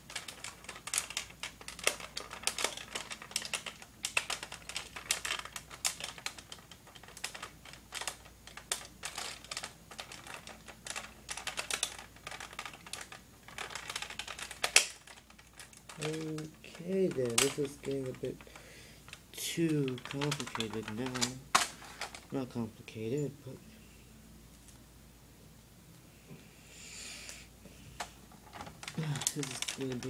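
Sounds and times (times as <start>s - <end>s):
plastic toy parts clicking: 0.0s - 22.3s, 28.5s - 30.0s.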